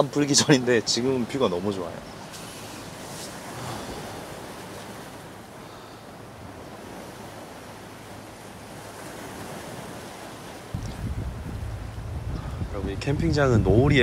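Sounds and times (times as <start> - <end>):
waves washing on shore: 0.0 - 14.0.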